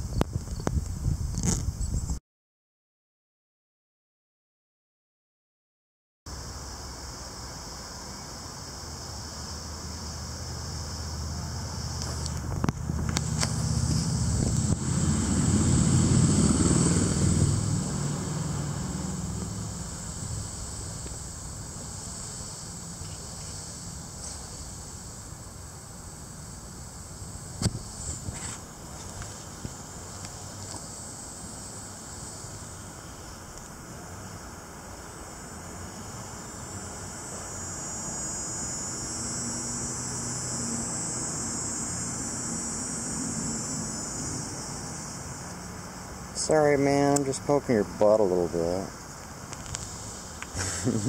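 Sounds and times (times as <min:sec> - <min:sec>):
cicada buzzing: 0:00.0 - 0:02.2, 0:06.3 - 0:51.0
high-pitched hiss: 0:06.3 - 0:51.0
passing engine hum: 0:12.4 - 0:21.0, 0:39.4 - 0:46.4.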